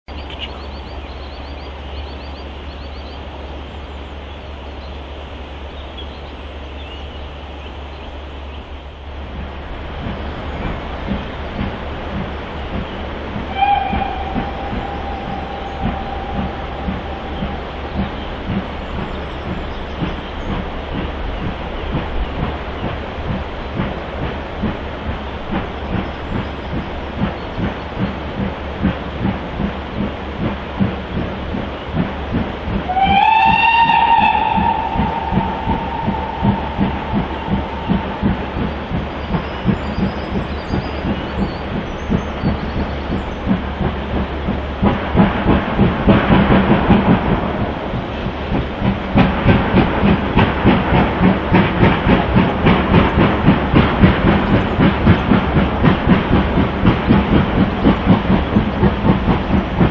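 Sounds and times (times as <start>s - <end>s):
small bird chirping: 0.1s - 3.2s
low rumble: 0.1s - 59.9s
steam locomotive chuffing: 0.1s - 59.9s.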